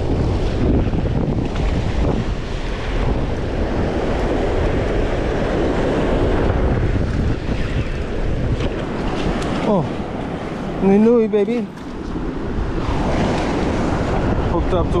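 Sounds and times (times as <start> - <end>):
surf washing over reef: 0.0 - 15.0
wind buffeting microphone: 0.0 - 15.0.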